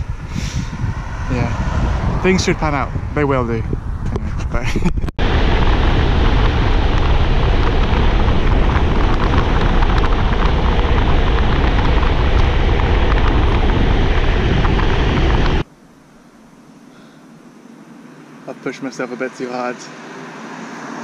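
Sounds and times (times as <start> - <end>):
wind noise on microphone: 0.0 - 15.7
bicycle ticking on road: 6.2 - 15.6.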